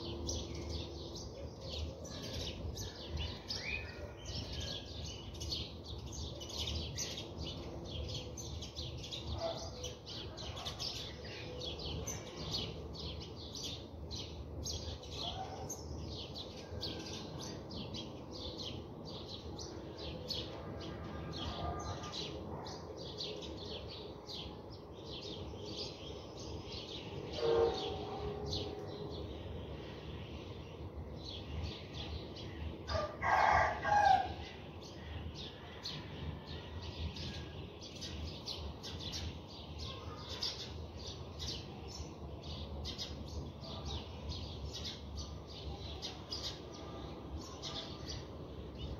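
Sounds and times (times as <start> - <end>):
small birds chirping: 0.0 - 20.6.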